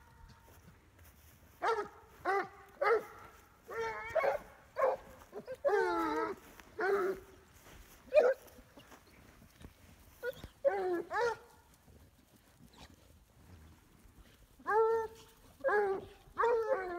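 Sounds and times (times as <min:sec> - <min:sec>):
hounds baying: 0:01.5 - 0:09.1, 0:10.1 - 0:11.8, 0:14.2 - 0:16.9.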